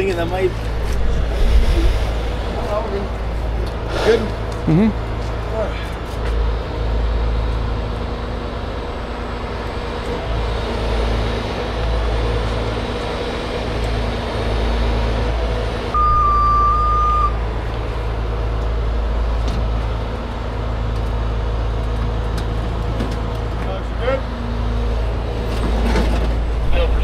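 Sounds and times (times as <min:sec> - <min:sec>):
diesel engine running: 0:00.0 - 0:27.0
alarm-like tone: 0:16.0 - 0:17.4.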